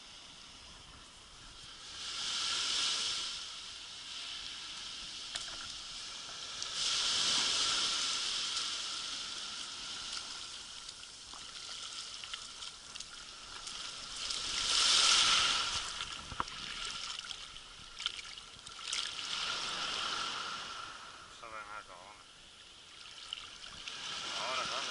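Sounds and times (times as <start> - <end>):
small waves washing on sand: 0.0 - 24.9
splashes of wading feet: 10.0 - 20.4.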